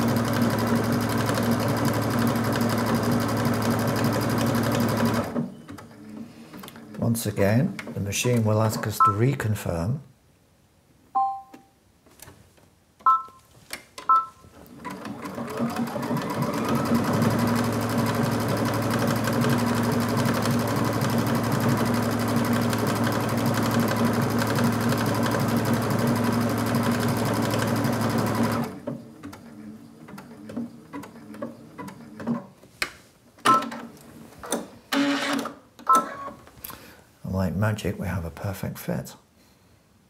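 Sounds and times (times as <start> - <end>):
sewing machine stitching: 0.0 - 6.0, 14.6 - 32.5, 34.5 - 36.3
short machine beeps: 11.2 - 11.6, 13.1 - 13.4, 14.1 - 14.4.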